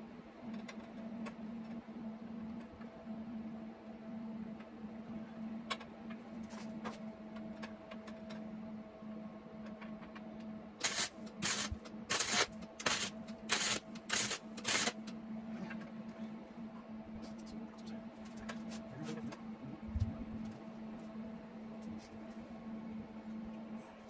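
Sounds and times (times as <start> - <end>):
welder bursts: 10.8 - 15.0.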